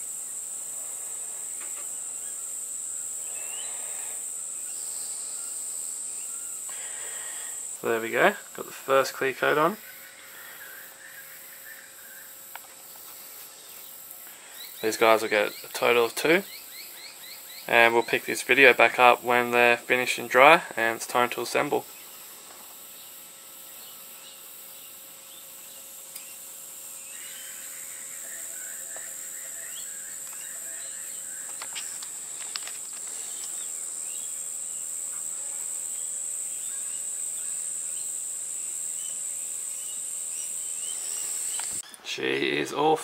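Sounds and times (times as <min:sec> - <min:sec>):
insects trilling: 0:00.0 - 0:43.0
bird chirps: 0:09.8 - 0:18.3, 0:23.0 - 0:32.2.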